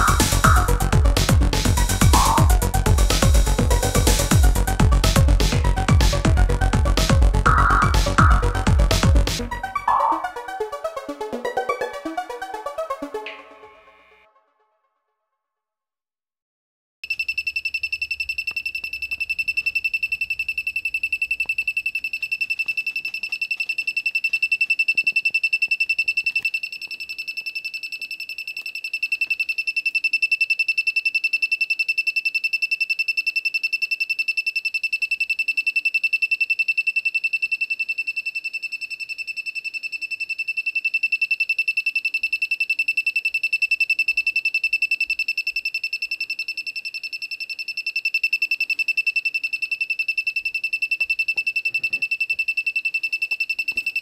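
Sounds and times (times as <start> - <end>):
high electronic tone pulsing: 0.0 - 3.2, 7.2 - 13.2.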